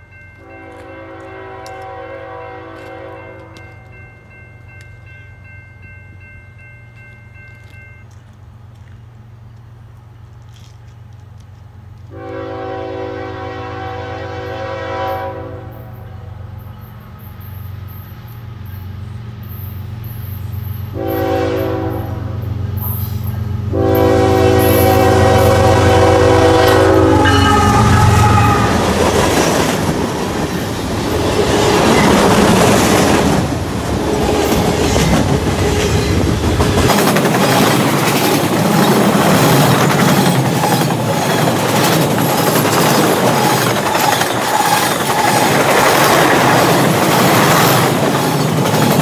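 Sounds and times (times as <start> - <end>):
locomotive air horn blasts: 0.4 - 3.6, 12.1 - 16.3, 20.9 - 22.5, 23.7 - 29.0.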